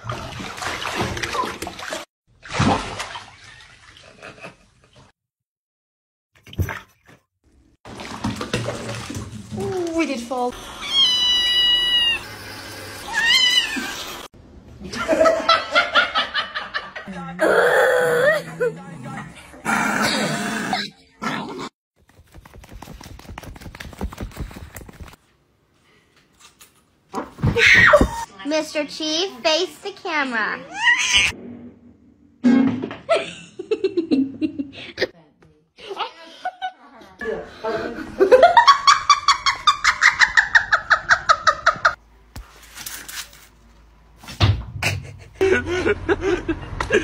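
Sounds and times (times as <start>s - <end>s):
woman laughing: 44.8s - 47.0s.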